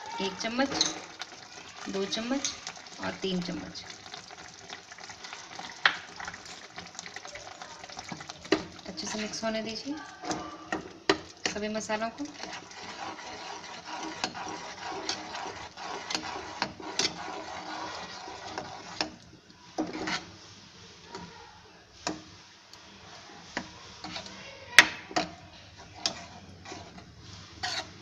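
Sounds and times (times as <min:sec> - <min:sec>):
spoon scraping and knocking pan: 0:00.4 - 0:03.2, 0:08.0 - 0:19.2, 0:19.8 - 0:20.3, 0:23.5 - 0:28.0.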